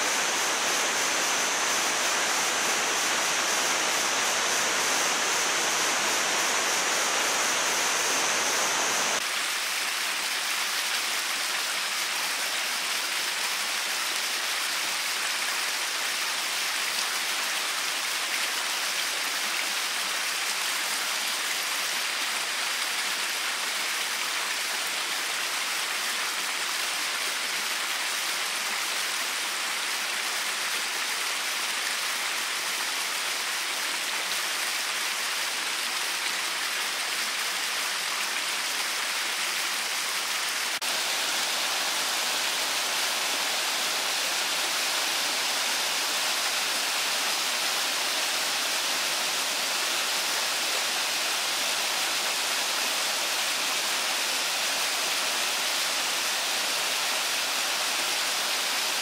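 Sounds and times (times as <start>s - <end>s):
stream cascading over rocks: 0.0s - 59.0s.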